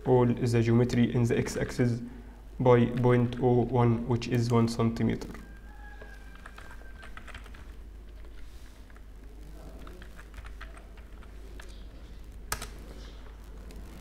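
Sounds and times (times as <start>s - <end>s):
low steady hum: 0.0s - 14.0s
keyboard keys tapping: 6.4s - 9.0s, 9.8s - 12.9s.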